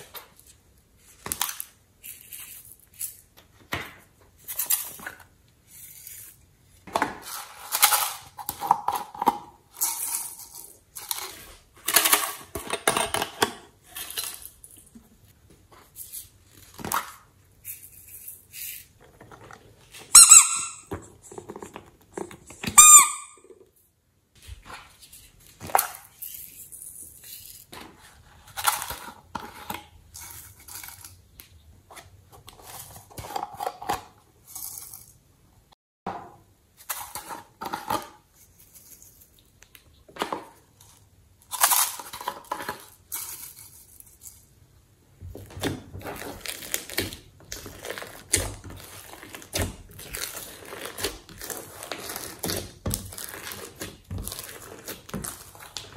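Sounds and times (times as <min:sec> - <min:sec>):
rubber squeeze toy squeaking: 0:20.0 - 0:20.9, 0:22.5 - 0:23.5.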